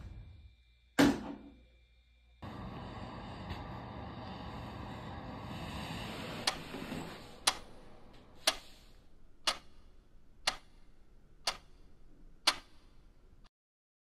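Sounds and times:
wall clock ticking: 0:06.4 - 0:07.8, 0:08.4 - 0:13.0.

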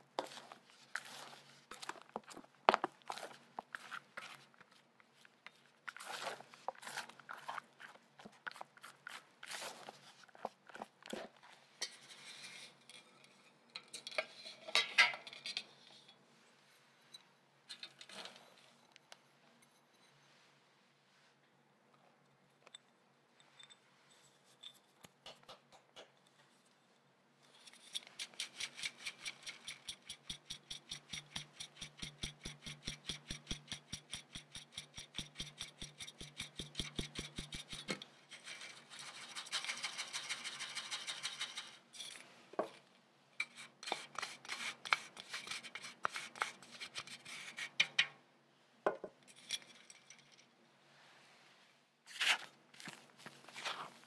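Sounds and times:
metal sieve tapping: 0:28.0 - 0:38.0.

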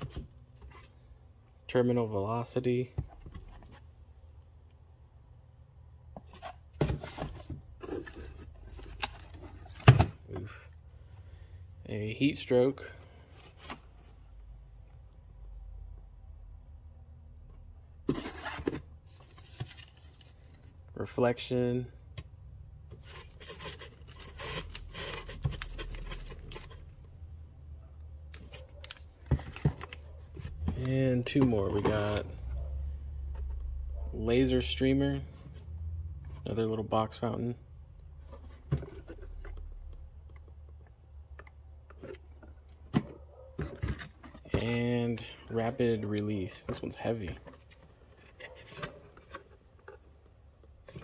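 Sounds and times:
packaging rustling and scraping: 0:06.2 - 0:10.6, 0:18.1 - 0:20.8, 0:22.9 - 0:27.0, 0:28.3 - 0:32.6, 0:38.2 - 0:39.9, 0:41.9 - 0:50.2.

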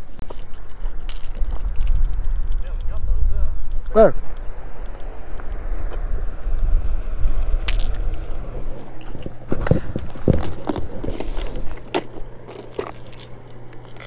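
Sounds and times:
low rumble: 0:00.0 - 0:14.0
steady low hum: 0:00.0 - 0:14.0.

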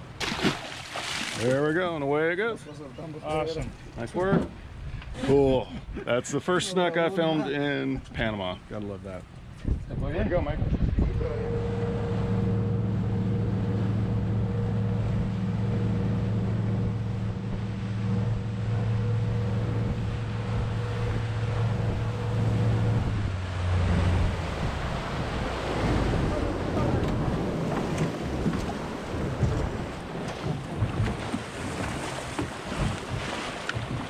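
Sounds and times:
water spraying past hull: 0:00.0 - 0:01.9, 0:10.9 - 0:34.0
wind: 0:00.0 - 0:34.0
boat engine running: 0:10.2 - 0:34.0.

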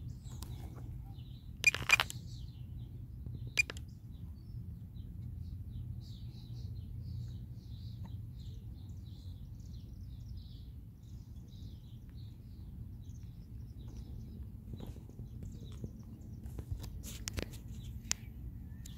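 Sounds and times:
low steady rumble: 0:00.0 - 0:18.9
small birds chirping: 0:00.0 - 0:18.9.

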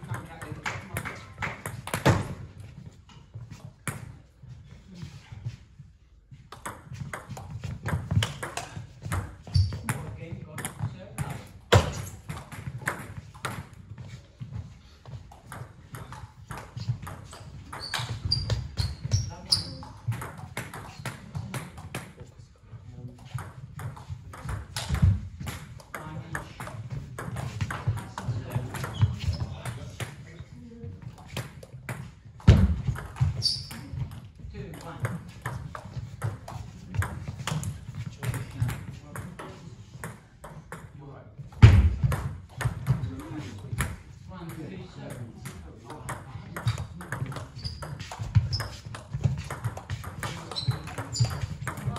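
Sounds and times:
table tennis balls clicking: 0:45.4 - 0:51.9.

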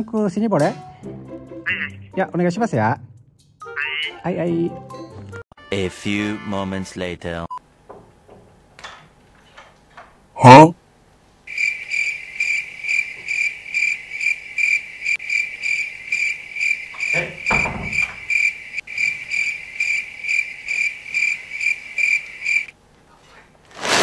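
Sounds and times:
cricket chirping: 0:11.5 - 0:22.7.

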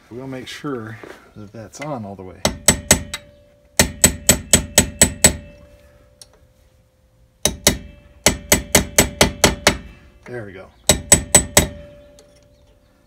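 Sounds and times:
hammer tapping metal: 0:02.4 - 0:05.6, 0:07.4 - 0:10.0, 0:10.8 - 0:12.5
faint metallic ring: 0:05.3 - 0:08.2.

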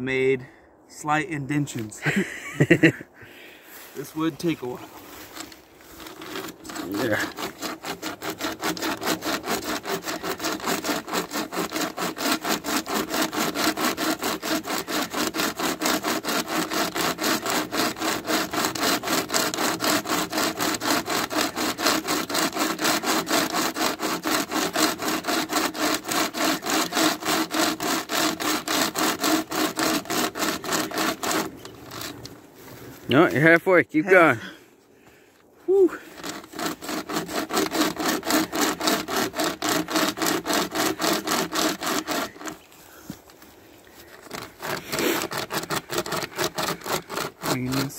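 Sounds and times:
hand chainsaw rasping through log: 0:04.0 - 0:33.3, 0:35.7 - 0:47.9.

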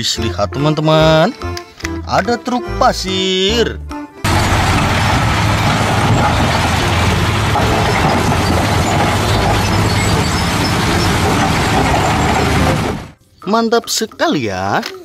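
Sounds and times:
dump truck diesel engines running: 0:04.3 - 0:13.2.

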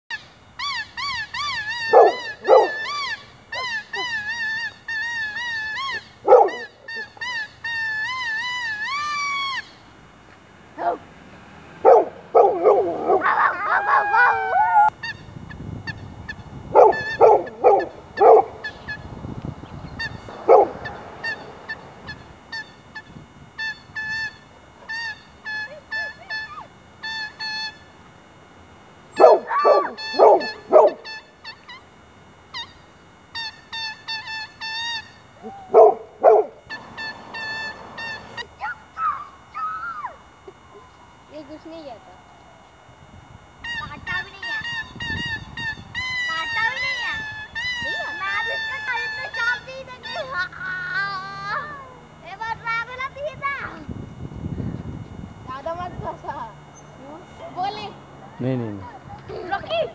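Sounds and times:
dog howling: 0:01.4 - 0:07.1, 0:10.8 - 0:11.1, 0:11.8 - 0:14.9, 0:16.8 - 0:18.7, 0:20.4 - 0:21.4, 0:29.2 - 0:31.2, 0:35.4 - 0:41.0
dog barking: 0:01.8 - 0:03.0, 0:06.2 - 0:06.7, 0:10.8 - 0:11.1, 0:11.8 - 0:14.9, 0:16.8 - 0:18.6, 0:20.4 - 0:21.0, 0:29.2 - 0:31.1, 0:35.4 - 0:36.6
boy whistling: 0:36.7 - 0:40.2.

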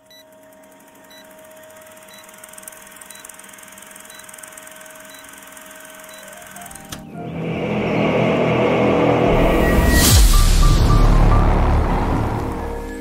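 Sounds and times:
film projector whirring and clattering: 0:00.0 - 0:07.0.

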